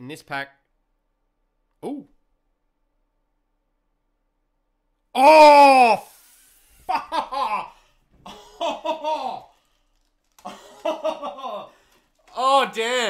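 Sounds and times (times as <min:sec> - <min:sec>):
man exclaiming oh: 0:05.2 - 0:06.1
man half-laughing excitedly: 0:06.9 - 0:09.6, 0:10.4 - 0:11.8.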